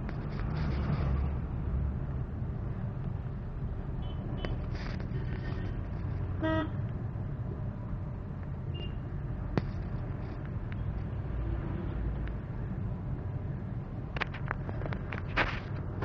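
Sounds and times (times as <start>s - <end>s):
car engine and road rumble: 0.0s - 16.0s
vehicle horn toot: 6.4s - 6.8s.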